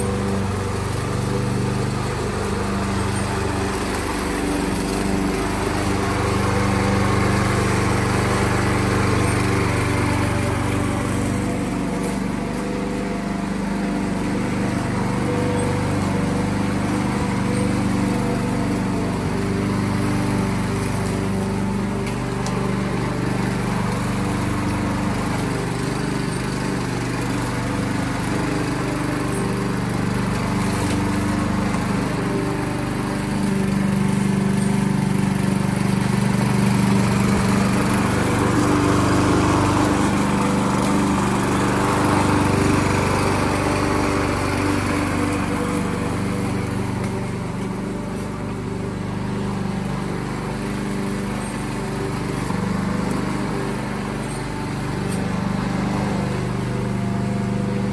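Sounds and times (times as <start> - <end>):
lawn mower engine running: 0.0 - 57.9.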